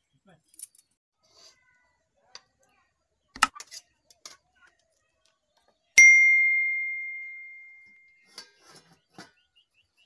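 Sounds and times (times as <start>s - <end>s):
bell ding: 6.0s - 8.1s.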